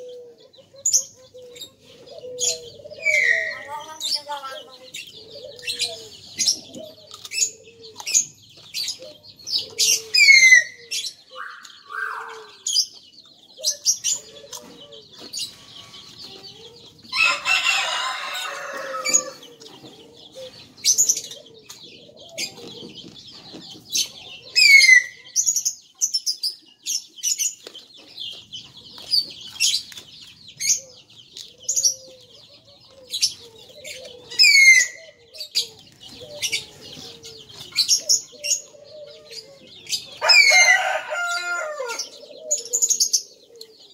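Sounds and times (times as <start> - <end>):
small birds chirping: 0.0 - 43.9.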